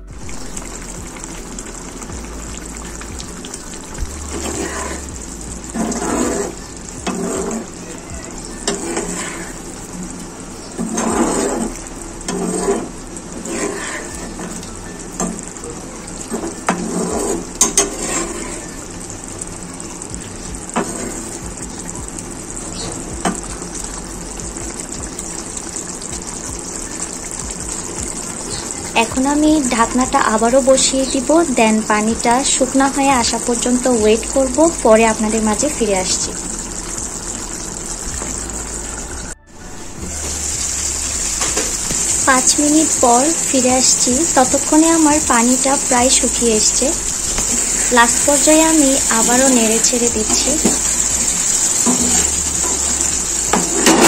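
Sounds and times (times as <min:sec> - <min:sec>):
sauce bubbling and sizzling in a pan: 0:00.0 - 0:54.0
metal spoon stirring: 0:05.7 - 0:07.8, 0:08.6 - 0:09.6, 0:10.7 - 0:15.3, 0:16.3 - 0:18.7.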